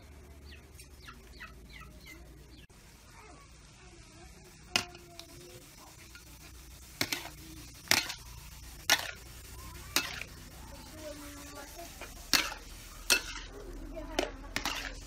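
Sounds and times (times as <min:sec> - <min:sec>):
faint steady hiss: 0:00.0 - 0:15.0
metal spatula scraping wok: 0:04.7 - 0:15.0.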